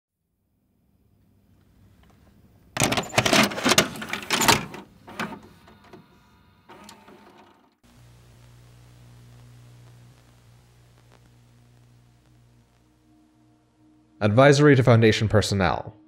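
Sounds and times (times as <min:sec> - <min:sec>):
low hum with static hiss: 0:00.2 - 0:15.1
cassette mechanism clunks and clicks: 0:02.8 - 0:06.1, 0:06.7 - 0:07.6.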